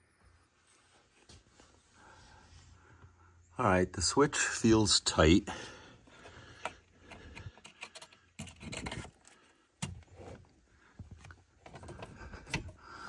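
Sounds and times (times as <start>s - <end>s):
plastic connector clicks and scraping: 6.2s - 10.5s.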